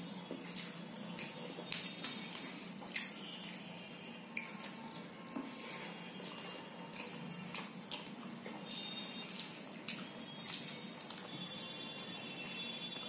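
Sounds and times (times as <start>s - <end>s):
fingers squelching food: 0.3s - 3.6s, 4.3s - 13.0s
mouth smacking while chewing: 4.4s - 13.0s.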